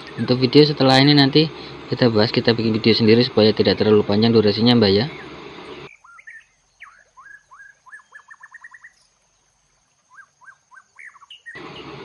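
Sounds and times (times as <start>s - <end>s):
small bird chirping: 4.8s - 12.0s.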